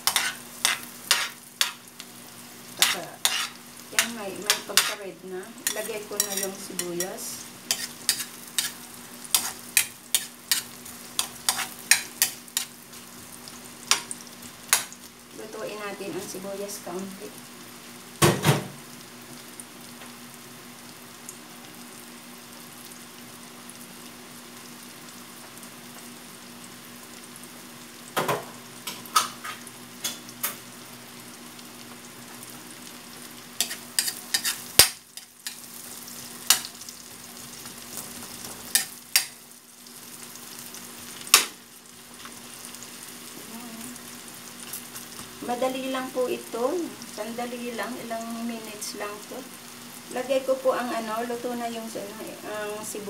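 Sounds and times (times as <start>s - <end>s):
spatula scraping a wok: 0.0s - 1.9s, 2.8s - 5.0s, 5.6s - 13.0s, 33.6s - 36.7s
onion sizzling in oil: 0.0s - 53.0s.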